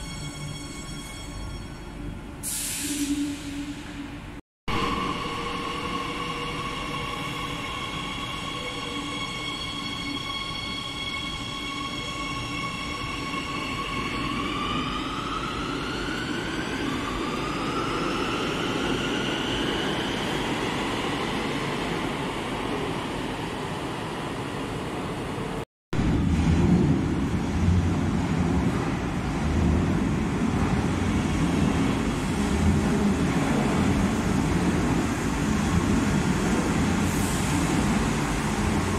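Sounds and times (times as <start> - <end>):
train rumble: 25.2 - 38.9.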